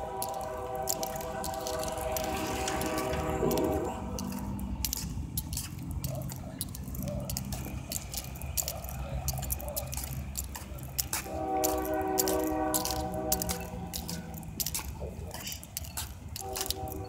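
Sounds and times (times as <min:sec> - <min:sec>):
train horn: 0:00.0 - 0:04.4, 0:11.2 - 0:14.4, 0:16.4 - 0:17.0
diesel locomotives rumbling: 0:00.0 - 0:17.0
sharp clicks and crackles: 0:00.0 - 0:17.0.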